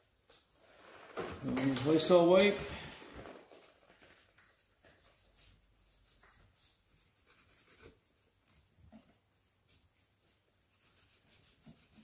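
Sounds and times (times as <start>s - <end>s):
wipe rubbing and scraping metal: 9.0s - 12.0s.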